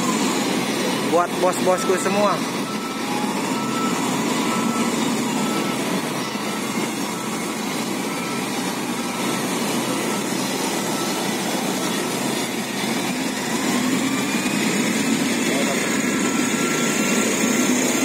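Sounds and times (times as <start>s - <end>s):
heavy diesel engines running: 0.0s - 18.0s
short beeps: 1.6s - 7.5s.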